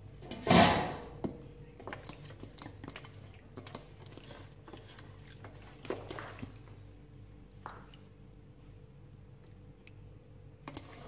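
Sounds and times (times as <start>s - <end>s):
hands squelching in marinade: 1.8s - 6.7s.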